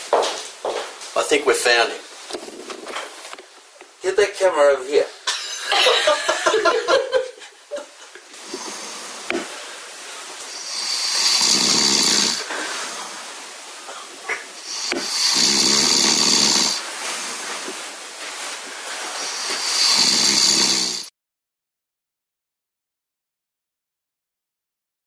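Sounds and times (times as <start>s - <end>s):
man snoring: 8.4s - 9.4s, 10.5s - 12.5s, 14.6s - 16.8s, 19.2s - 21.1s
soft breathing: 8.4s - 20.6s.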